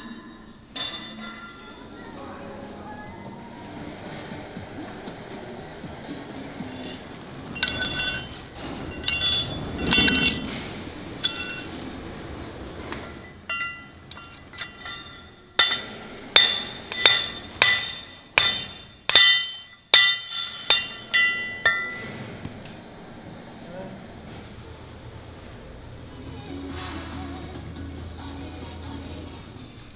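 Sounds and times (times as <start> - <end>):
hammer blows on metal: 13.5 - 22.2.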